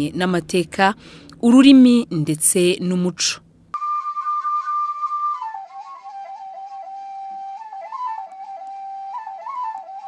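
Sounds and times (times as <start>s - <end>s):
solo flute melody: 3.8s - 10.0s.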